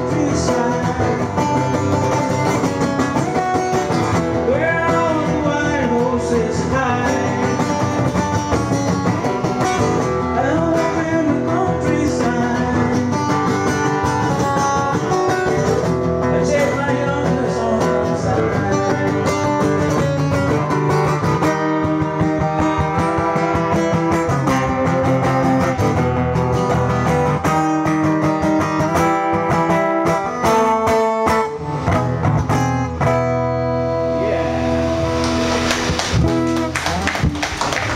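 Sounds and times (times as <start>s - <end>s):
acoustic guitar strummed and picked: 0.0s - 37.9s.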